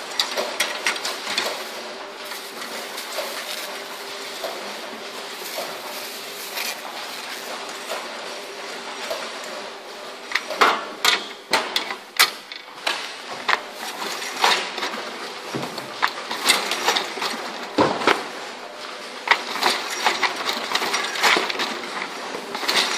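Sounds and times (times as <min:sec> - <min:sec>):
wrapping machine clicking and clacking: 0:00.0 - 0:22.9
paper rustling: 0:00.8 - 0:08.5.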